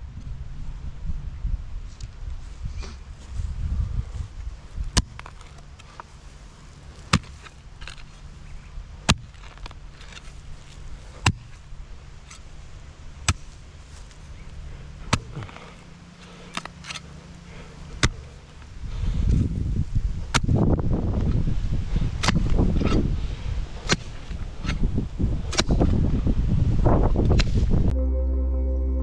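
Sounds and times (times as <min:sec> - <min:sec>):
hand tool chopping: 0:05.0 - 0:05.6, 0:07.1 - 0:08.1, 0:09.1 - 0:10.3, 0:11.2 - 0:11.6, 0:13.3 - 0:13.5, 0:15.1 - 0:15.7, 0:18.0 - 0:18.3, 0:20.3 - 0:20.7, 0:22.2 - 0:23.0, 0:23.8 - 0:24.8, 0:25.5 - 0:25.9.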